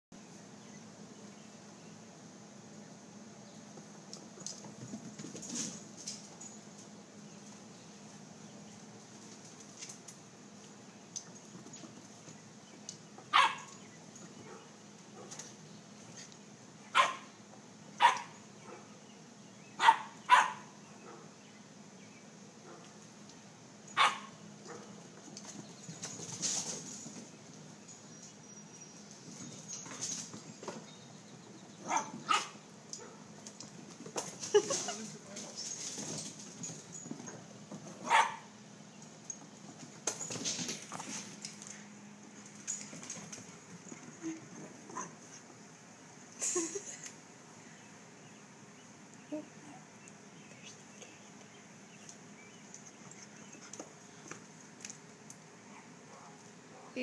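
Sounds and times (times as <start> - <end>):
dog barking: 13.3 - 13.7, 17.0 - 17.3, 18.0 - 18.9, 19.8 - 21.3, 24.0 - 24.9, 31.8 - 33.2, 38.0 - 38.5, 55.7 - 57.0.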